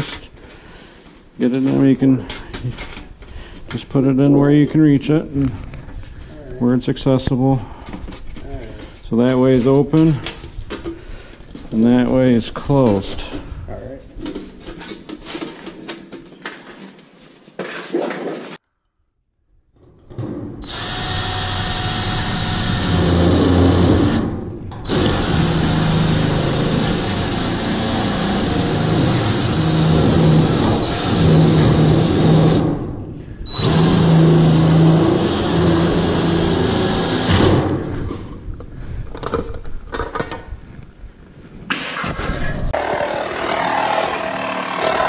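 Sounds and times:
drill whine into sheet metal: 0:20.6 - 0:32.8, 0:33.5 - 0:37.7, 0:42.8 - 0:45.0.

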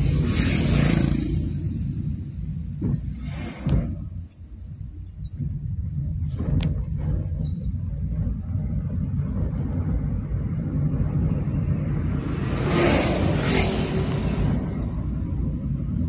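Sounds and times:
car engine and tyres rumbling: 0:00.0 - 0:16.0
vehicle passing by: 0:11.1 - 0:16.0.

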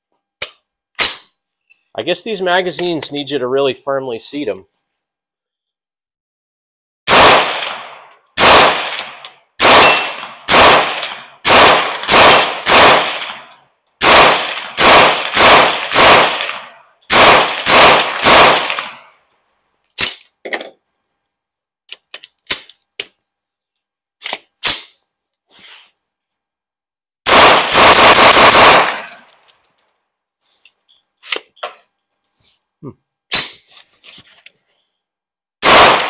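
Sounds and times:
rifle firing semi-automatic: 0:07.1 - 0:19.0, 0:27.3 - 0:29.3, 0:35.6 - 0:36.0.

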